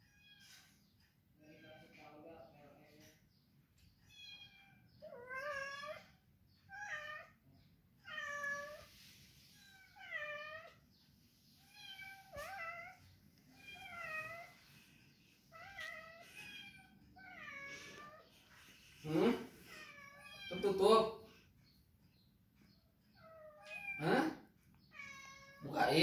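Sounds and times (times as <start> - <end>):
cat meowing: 4.1 - 7.4, 8.0 - 9.0, 9.6 - 10.9, 11.6 - 14.7, 15.5 - 18.3, 19.6 - 20.6, 23.1 - 24.1, 24.8 - 25.9.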